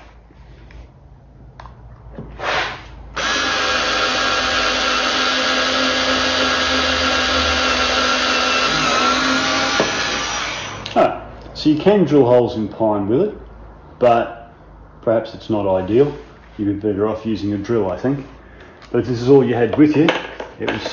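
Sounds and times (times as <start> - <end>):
cordless screwdriver drilling wood: 2.4 - 10.9.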